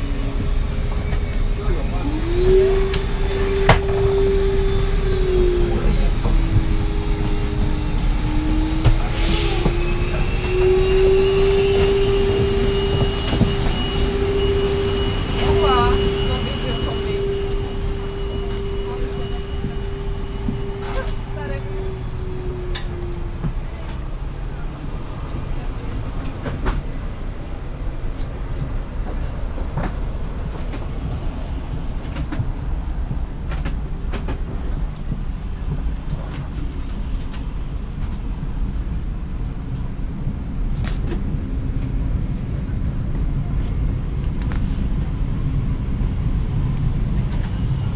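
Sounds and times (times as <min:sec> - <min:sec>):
airplane cabin rumble: 0:00.0 - 0:47.9
droning whine: 0:00.0 - 0:47.9
faint high whistle: 0:08.4 - 0:23.2.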